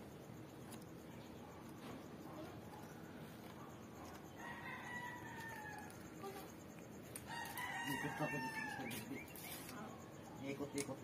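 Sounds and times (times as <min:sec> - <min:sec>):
rooster crowing: 0:04.3 - 0:06.3, 0:07.2 - 0:09.3.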